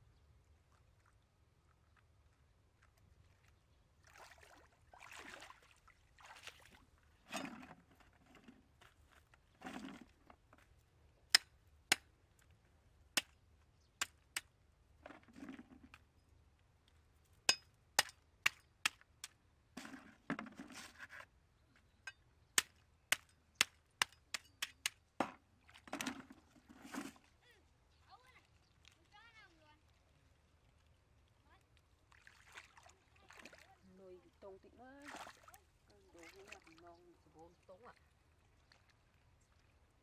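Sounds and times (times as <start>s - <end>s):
water splashing from wading: 4.0s - 7.0s, 32.0s - 39.8s.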